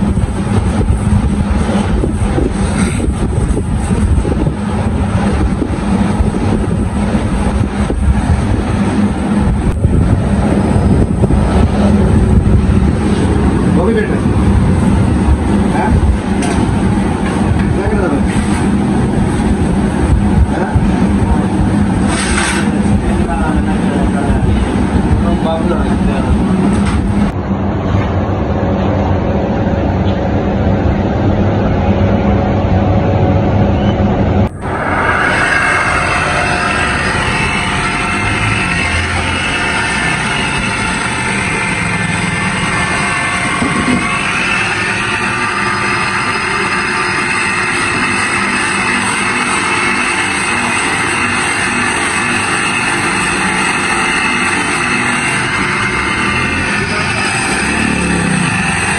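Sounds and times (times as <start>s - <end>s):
motor humming: 34.4s - 58.9s.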